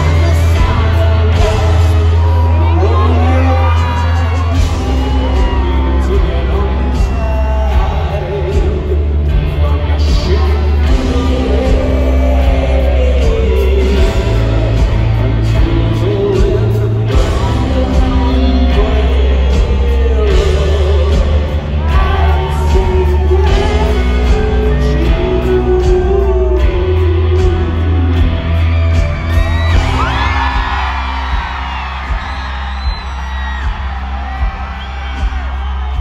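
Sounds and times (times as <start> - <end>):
audience whooping: 0.0 - 8.7, 21.8 - 25.8, 28.0 - 36.0
live rock band: 0.0 - 36.0
man singing: 0.0 - 36.0.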